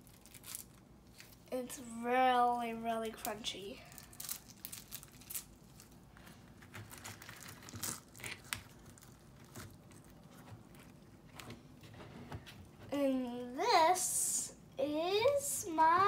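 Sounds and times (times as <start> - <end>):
crunchy slime crackling: 0.0 - 1.6, 3.0 - 11.4.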